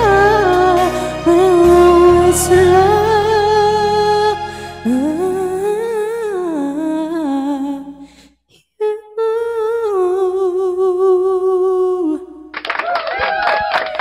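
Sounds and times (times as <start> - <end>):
young man singing into microphone: 0.0 - 8.0.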